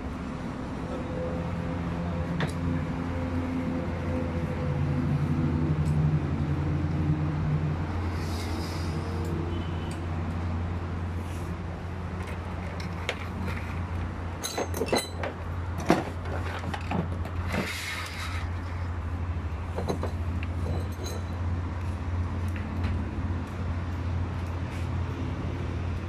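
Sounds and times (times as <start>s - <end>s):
metallic clinks and knocks: 14.4s - 17.1s, 19.7s - 21.4s.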